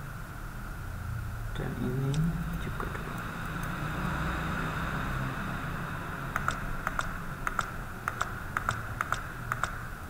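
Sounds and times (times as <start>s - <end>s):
steady background hum: 0.0s - 10.0s
keyboard and mouse clicks: 6.4s - 9.8s.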